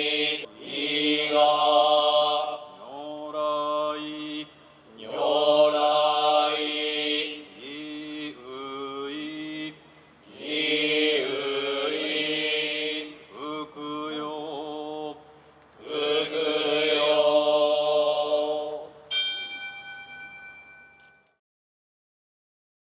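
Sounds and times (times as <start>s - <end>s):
monks chanting: 0.0s - 15.2s, 15.8s - 18.9s
bell ringing: 19.1s - 21.4s.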